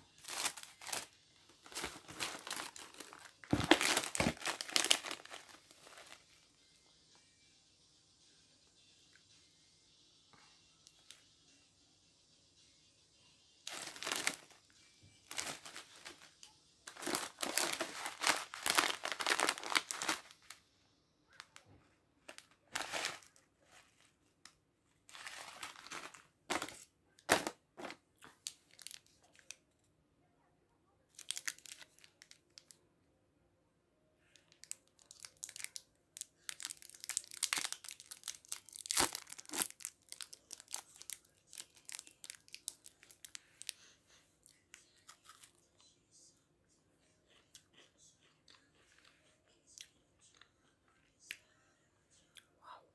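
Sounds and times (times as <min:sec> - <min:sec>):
snack wrappers crinkling: 0:00.1 - 0:06.2, 0:13.7 - 0:14.6, 0:15.3 - 0:16.3, 0:16.9 - 0:20.6, 0:22.3 - 0:24.1, 0:25.1 - 0:29.6, 0:31.1 - 0:32.8, 0:34.4 - 0:45.5
foil wrapper tearing: 0:00.2 - 0:06.2, 0:13.7 - 0:14.5, 0:15.3 - 0:16.3, 0:16.9 - 0:20.6, 0:22.7 - 0:23.4, 0:36.4 - 0:43.7.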